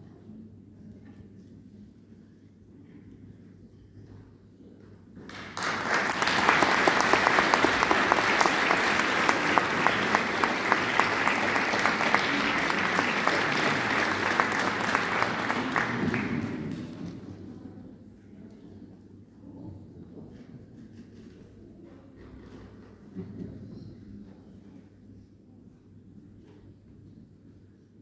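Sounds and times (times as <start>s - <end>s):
audience applauding: 5.3s - 17.2s.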